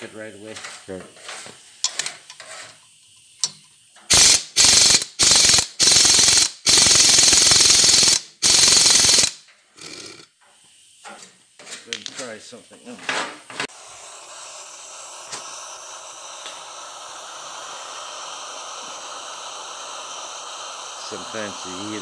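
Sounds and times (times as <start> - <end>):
pneumatic impact wrench hammering: 1.8 - 10.3, 15.2 - 15.6.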